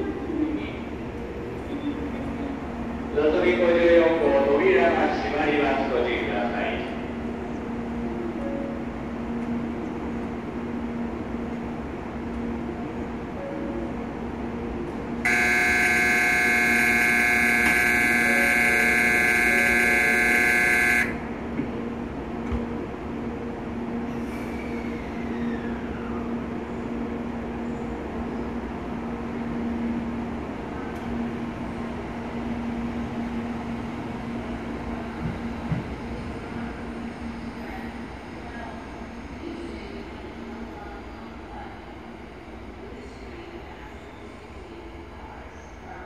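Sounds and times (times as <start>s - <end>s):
train running noise: 0.0s - 46.0s
electronic departure bell ringing: 15.3s - 21.2s.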